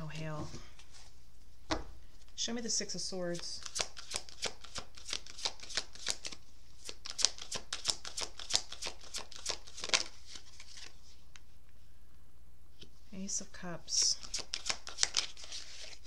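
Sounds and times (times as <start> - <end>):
playing cards being shuffled: 3.6 - 11.0, 14.2 - 16.0.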